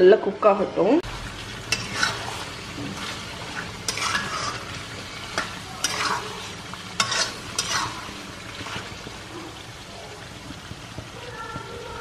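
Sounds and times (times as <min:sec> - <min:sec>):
curry sizzling: 0:00.0 - 0:12.0
spatula scraping a pot: 0:01.7 - 0:09.0.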